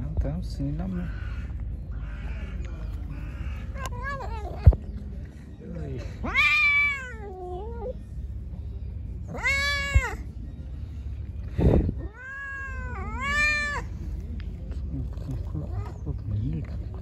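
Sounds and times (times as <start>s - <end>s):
cat meowing: 3.4s - 4.8s, 6.2s - 8.0s, 9.3s - 10.2s, 12.0s - 13.9s.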